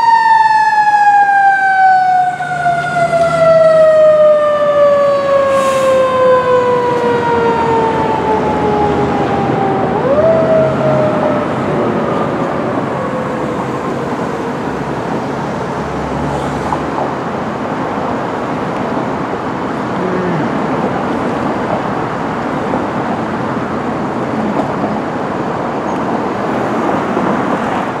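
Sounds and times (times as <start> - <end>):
siren sliding down in pitch: 0.0 - 15.0
road traffic noise: 0.0 - 28.0.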